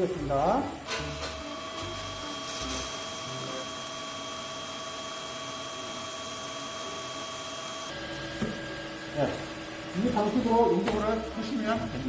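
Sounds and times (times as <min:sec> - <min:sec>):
welding arc hissing: 0:00.8 - 0:07.9.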